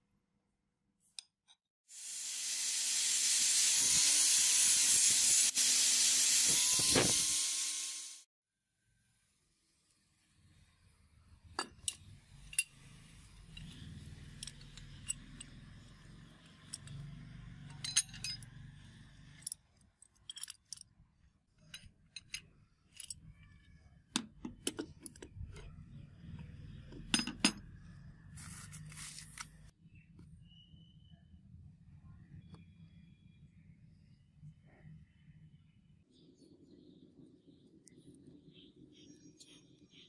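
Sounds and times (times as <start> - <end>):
metallic clicks and clinks: 16.4 - 18.7, 19.3 - 20.9, 21.6 - 23.4.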